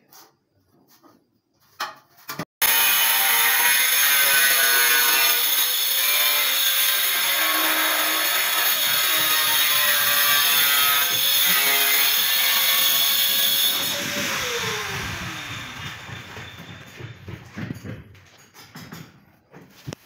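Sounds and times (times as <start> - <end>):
loud power tool running: 2.6 - 17.2.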